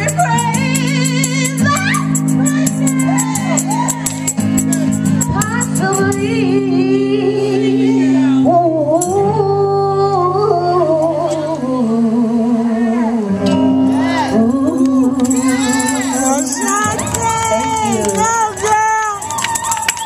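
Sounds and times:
amplified person singing: 0:00.0 - 0:19.4
backing track chords: 0:00.0 - 0:19.9.

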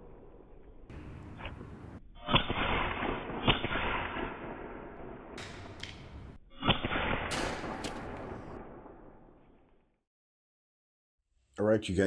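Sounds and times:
air pistol shots: 0:02.2 - 0:09.1.

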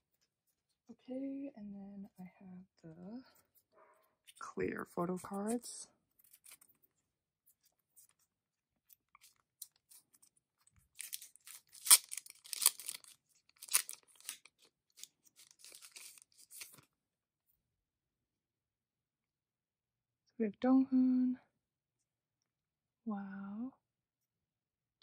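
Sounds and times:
plastic crinkling and crackling: 0:08.8 - 0:16.9.

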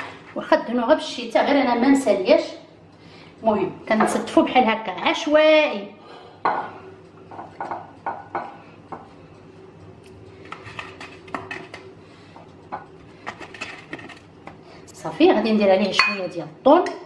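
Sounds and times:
faint steady hum: 0:00.0 - 0:17.0
ceramic dishes clinking: 0:16.0 - 0:16.3.

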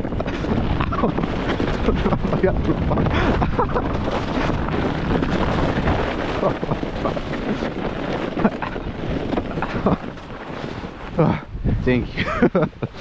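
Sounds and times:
small bumps and knocks: 0:00.0 - 0:11.5
sled scraping over snow: 0:00.0 - 0:13.0
wind on microphone: 0:00.0 - 0:13.0.

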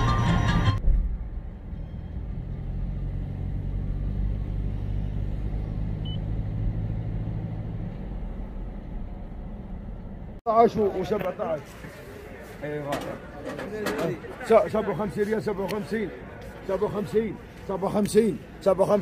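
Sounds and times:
car engine and tyres rumbling: 0:00.0 - 0:10.4.

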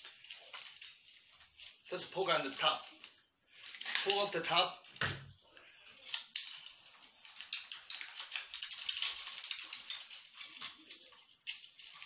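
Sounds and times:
plastic clicks and rattles: 0:06.0 - 0:12.0.

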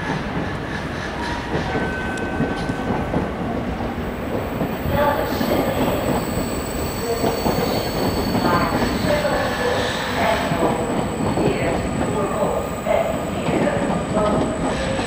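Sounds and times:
freight train rumbling: 0:00.0 - 0:15.0
train wheels squealing: 0:00.6 - 0:02.9, 0:04.7 - 0:11.9.

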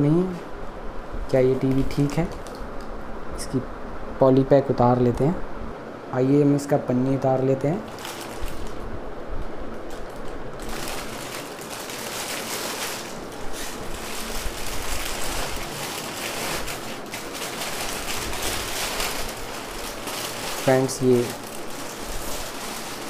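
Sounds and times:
plastic bag rustling and crinkling: 0:07.7 - 0:08.9, 0:09.6 - 0:23.0.

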